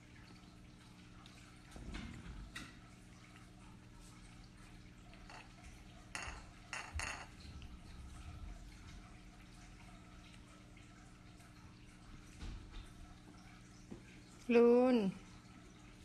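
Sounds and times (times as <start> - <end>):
saucer knocking on wooden floor: 6.2 - 7.4.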